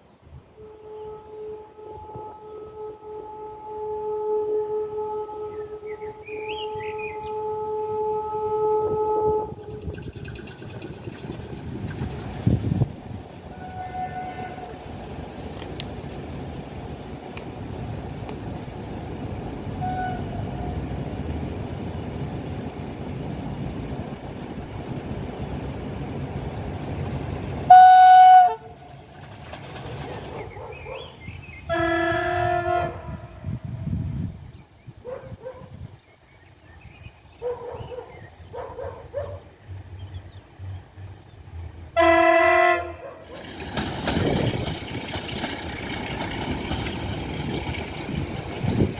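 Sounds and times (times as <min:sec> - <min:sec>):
locomotive horn blasts: 0:00.5 - 0:09.8, 0:13.5 - 0:14.8, 0:19.7 - 0:21.0, 0:27.7 - 0:28.9, 0:31.6 - 0:33.4, 0:42.0 - 0:43.0.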